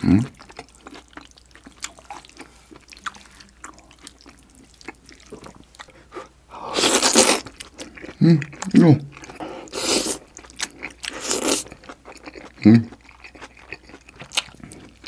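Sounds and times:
wet smacking chewing: 0.4s - 6.3s
loud slurp of noodles: 6.7s - 7.4s, 9.7s - 10.2s.

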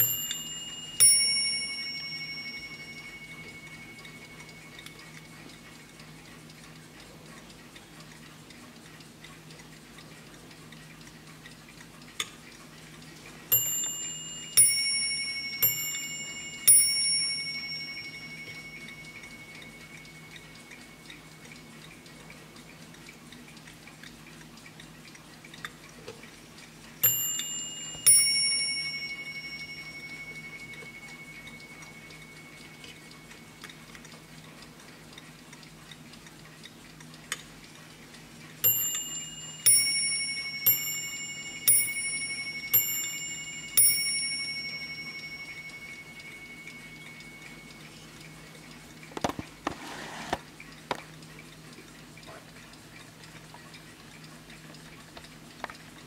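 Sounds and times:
mantel clock striking ding-dong: 0.0s - 6.1s, 13.4s - 21.9s, 27.0s - 34.3s, 38.6s - 49.8s.

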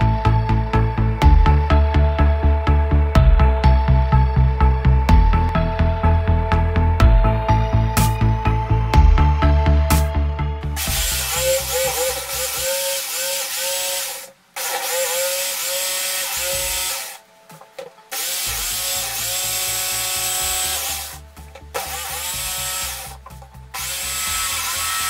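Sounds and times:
electric jigsaw cutting board: 10.8s - 25.0s.

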